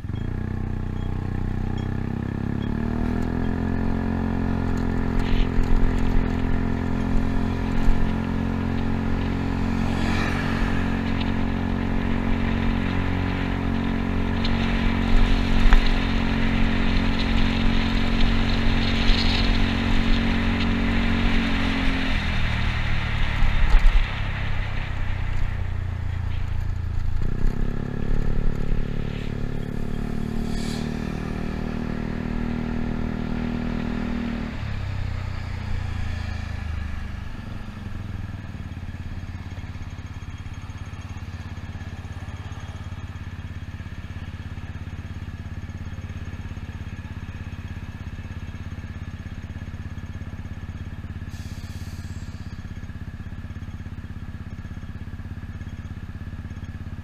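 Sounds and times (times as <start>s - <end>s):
scooter engine running: 0.0s - 57.0s.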